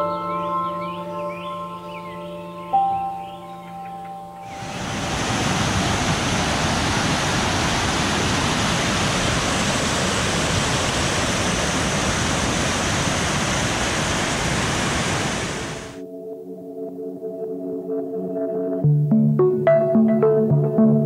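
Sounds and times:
waterfall rushing: 0:04.4 - 0:16.0.

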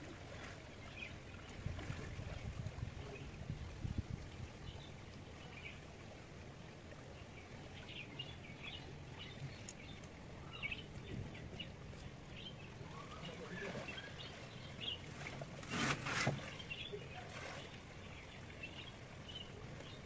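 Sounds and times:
birds chirping: 0:07.2 - 0:15.4, 0:16.3 - 0:20.0.

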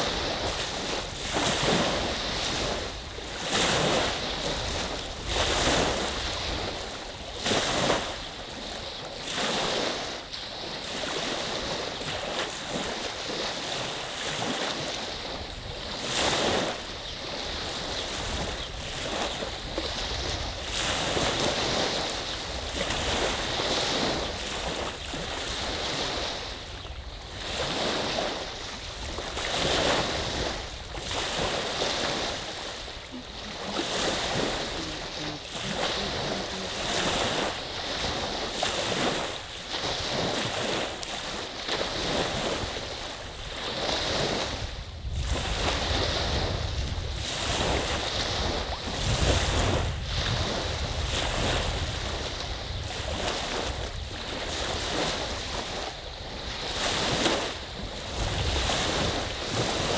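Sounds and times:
lake waves washing onto beach: 0:00.0 - 0:59.9
wind buffeting microphone: 0:00.0 - 0:59.9.

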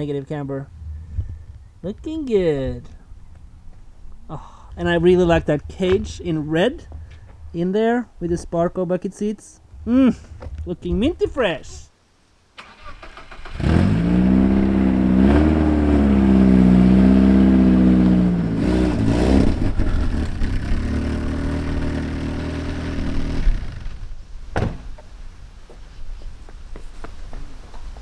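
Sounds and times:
car engine revving: 0:12.7 - 0:24.0.

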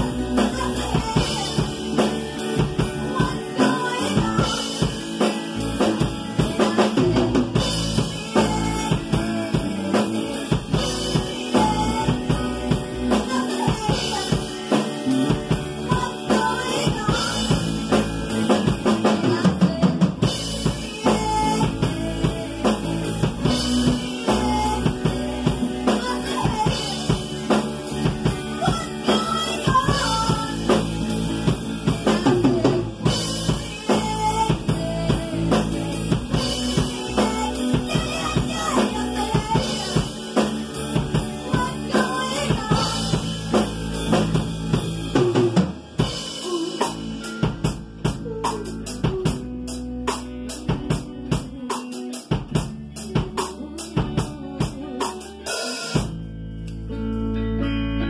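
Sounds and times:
female lead vocal: 0:00.0 - 0:56.0
drum kit with cymbals: 0:00.0 - 0:56.8
bass guitar: 0:00.0 - 0:58.0
electric guitar: 0:00.0 - 0:58.0.

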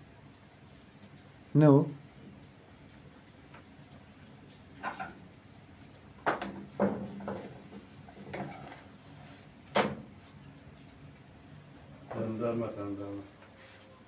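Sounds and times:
kitchen things knocking and clattering: 0:06.2 - 0:08.5.

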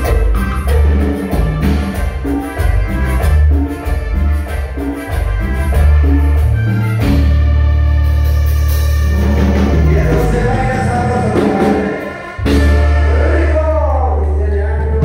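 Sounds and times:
heavy bass notes: 0:00.0 - 0:15.0
keyboard chords: 0:00.0 - 0:15.0
live dance band through pa: 0:00.0 - 0:15.0
person singing: 0:09.6 - 0:15.0.

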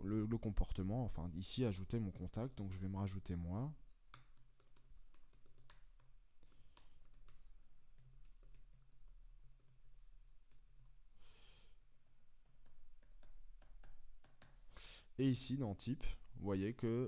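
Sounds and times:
faint keyboard typing: 0:02.0 - 0:11.1, 0:11.9 - 0:14.8
breath into microphone: 0:11.2 - 0:11.8, 0:14.7 - 0:15.1.

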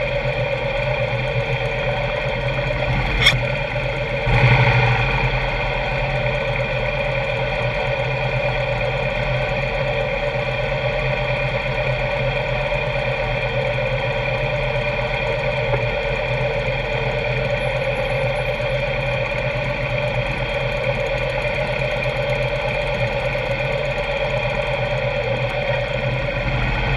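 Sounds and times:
motorcycle engine droning: 0:00.0 - 0:26.9.

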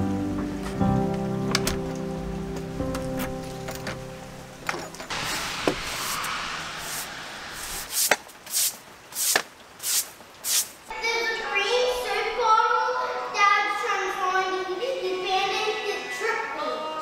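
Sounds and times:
broom sweeping wet wood: 0:05.1 - 0:10.9
young child's voice: 0:10.9 - 0:17.0.

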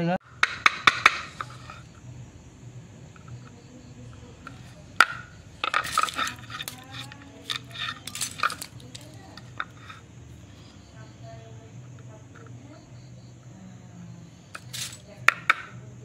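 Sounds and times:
metal laminations clinking and scraping: 0:00.3 - 0:02.0, 0:04.1 - 0:10.0, 0:14.6 - 0:15.7
metallic clicking: 0:14.6 - 0:15.6.

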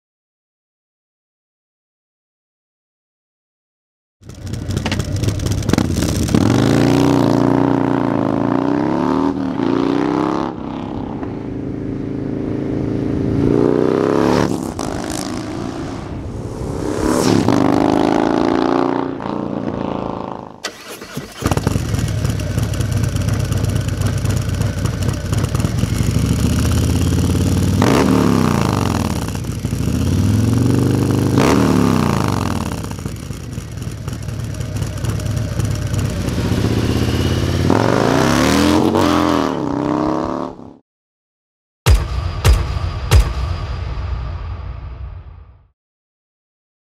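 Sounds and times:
motorcycle idling with throttle blips: 0:04.2 - 0:06.3, 0:20.8 - 0:27.8, 0:33.0 - 0:37.7
motorcycle accelerating past: 0:04.2 - 0:20.6, 0:21.4 - 0:33.1, 0:33.7 - 0:40.7.

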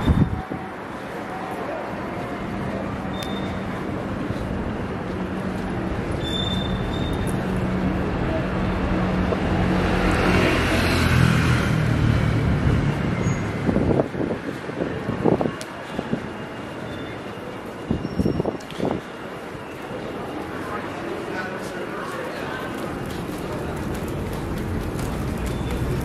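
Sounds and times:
street traffic: 0:00.0 - 0:26.0
vehicle engine passing by: 0:08.0 - 0:14.1.

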